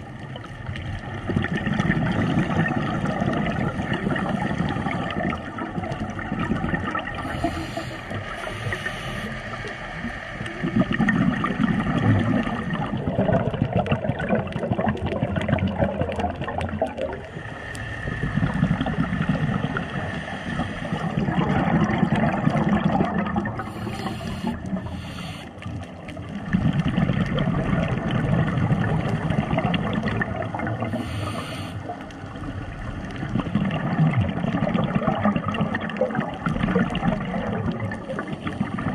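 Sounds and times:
bubbles gurgling underwater: 0.0 - 38.9
regulator hisses: 7.2 - 10.0, 23.6 - 25.6, 30.9 - 32.0.

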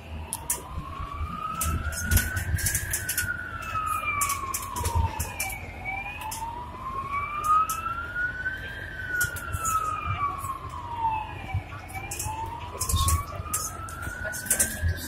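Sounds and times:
bus drivetrain whine: 0.0 - 15.0
low engine rumble: 0.0 - 15.0.

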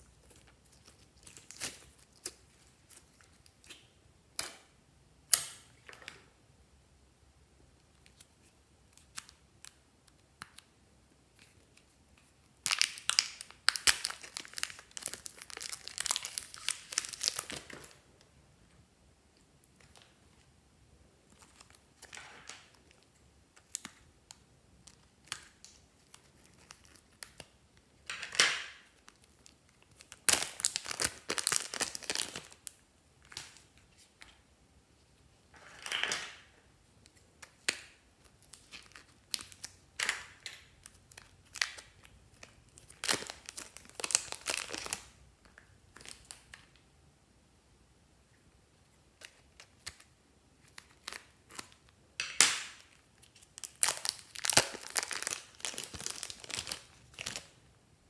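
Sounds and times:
plastic packaging crinkling: 0.0 - 3.7, 11.3 - 18.0, 21.3 - 27.4, 28.0 - 34.0, 37.4 - 46.7, 52.6 - 57.6.

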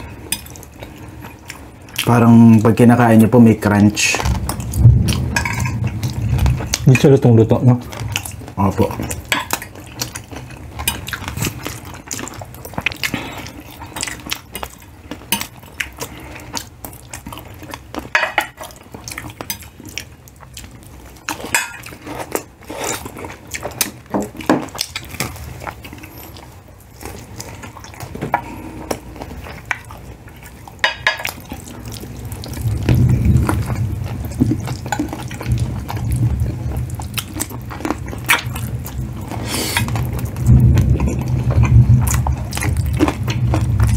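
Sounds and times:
wet chewing: 4.0 - 43.9
low rumble: 4.2 - 7.0, 31.9 - 43.9.

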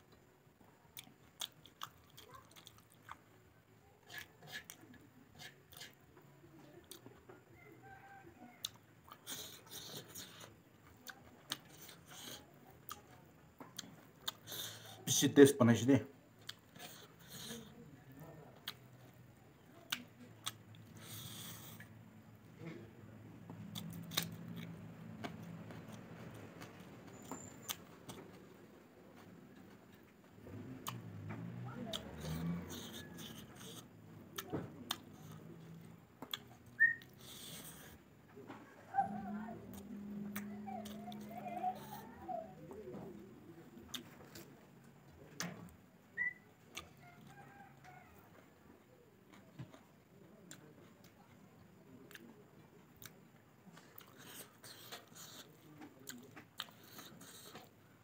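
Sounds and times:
chewing and biting: 1.0 - 3.3, 8.6 - 15.0, 19.8 - 21.9, 23.5 - 28.3, 30.4 - 38.0, 53.0 - 57.8.

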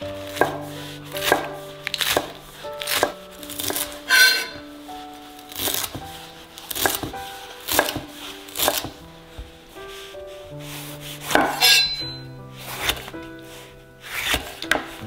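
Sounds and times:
knife chopping on wooden board: 1.2 - 4.6, 6.7 - 9.0, 11.3 - 12.1.

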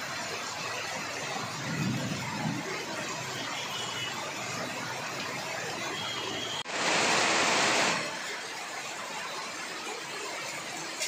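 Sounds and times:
heavy rain on road: 0.0 - 11.0.

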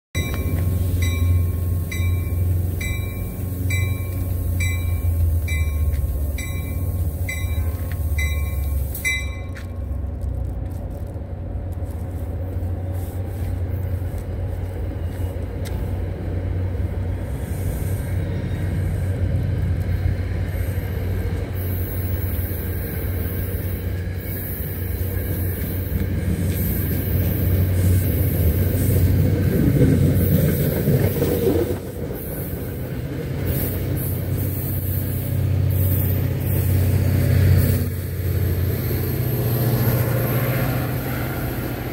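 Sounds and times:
passenger train rolling in: 0.1 - 41.9
bell ringing: 0.2 - 9.8
steady low rumble: 0.2 - 30.0.

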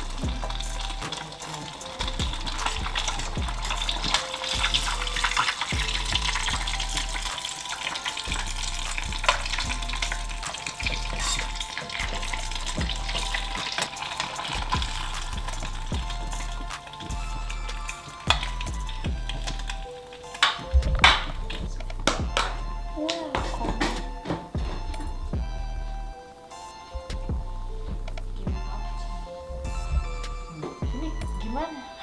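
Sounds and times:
hot oil sizzling and crackling: 0.0 - 21.6
background music: 0.0 - 32.0.

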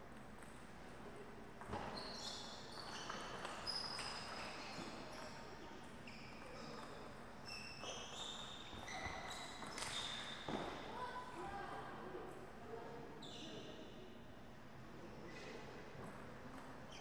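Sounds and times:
shoes squeaking on floor: 1.7 - 5.4, 6.0 - 10.8.

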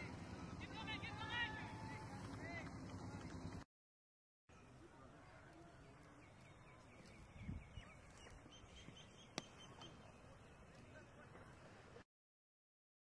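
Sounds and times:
birds chirping: 4.5 - 12.0.

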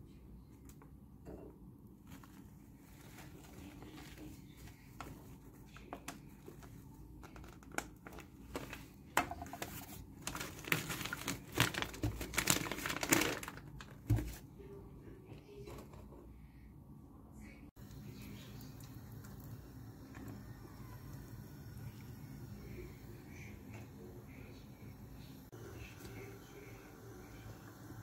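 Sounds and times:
flour bag crinkling: 2.1 - 14.4.

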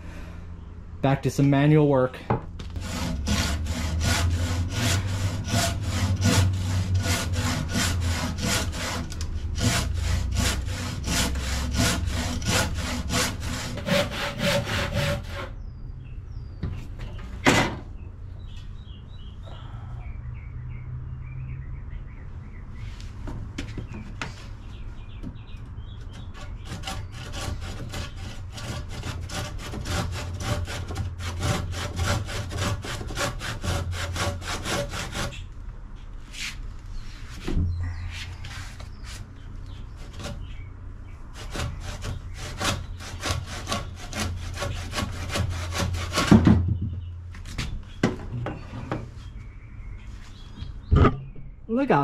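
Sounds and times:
handsaw cutting wood: 2.8 - 15.5, 26.2 - 35.4, 41.4 - 46.4.

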